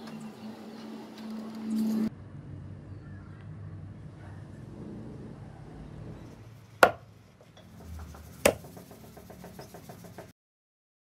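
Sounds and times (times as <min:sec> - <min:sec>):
axe chopping into wood: 0:06.8 - 0:07.1, 0:08.4 - 0:08.7.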